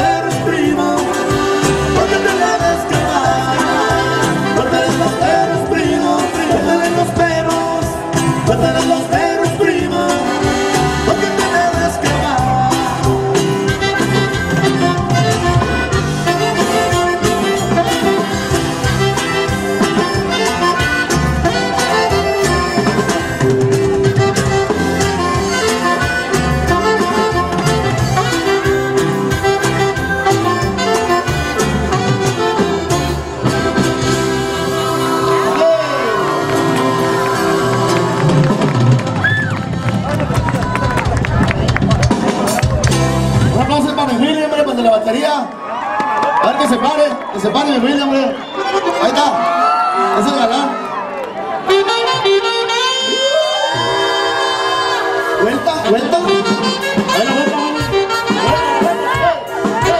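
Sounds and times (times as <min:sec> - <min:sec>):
drum and percussion beat: 0:00.0 - 0:35.6, 0:36.4 - 0:44.8, 0:56.1 - 0:59.9
accordion melody: 0:00.0 - 0:45.1, 0:47.7 - 0:50.5, 0:51.3 - 0:59.9
live band playing cumbia: 0:00.0 - 0:59.9.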